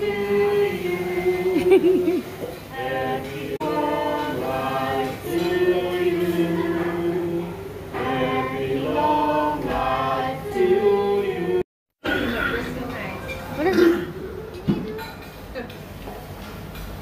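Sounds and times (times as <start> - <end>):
group of voices singing together: 0.0 - 11.7.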